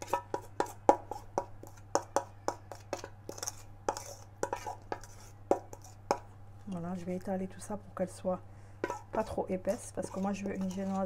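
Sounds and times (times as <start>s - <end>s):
spoon scraping metal bowl: 0.0s - 6.3s, 8.8s - 11.0s.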